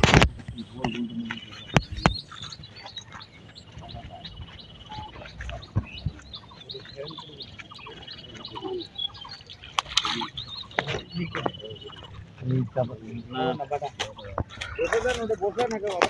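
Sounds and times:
small birds chirping: 0:00.0 - 0:16.0
high fast pulsing bird trill: 0:00.5 - 0:15.6
sharp clicks: 0:09.5 - 0:11.6.

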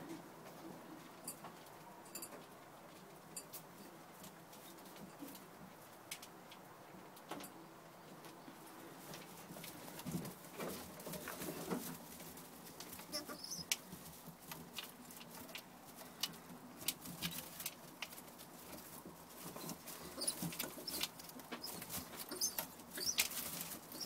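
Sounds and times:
clicks and rustles on straw: 0:08.1 - 0:24.0
pigeon squeaks: 0:13.1 - 0:13.7, 0:20.1 - 0:24.0.

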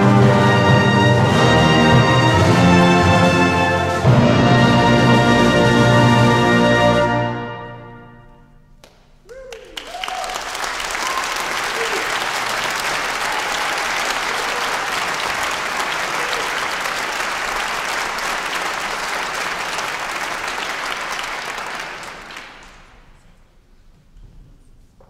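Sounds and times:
audience applauding: 0:08.8 - 0:23.2.

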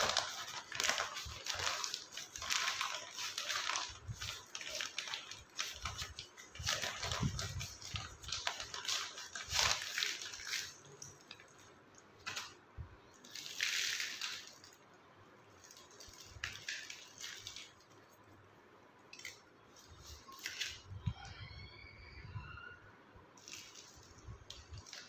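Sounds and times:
rustling and scraping of plant roots: 0:00.0 - 0:14.8, 0:19.2 - 0:21.3.

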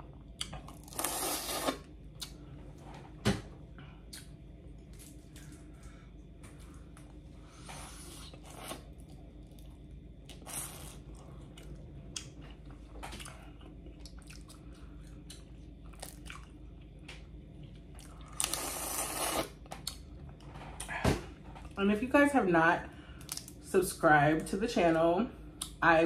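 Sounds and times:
wet eating smacks and chews: 0:08.3 - 0:18.6.

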